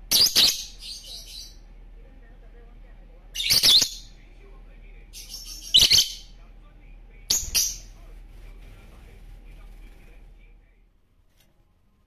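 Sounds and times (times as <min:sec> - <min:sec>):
lovebirds chirping: 0:00.0 - 0:01.8, 0:03.2 - 0:06.4, 0:07.2 - 0:08.1.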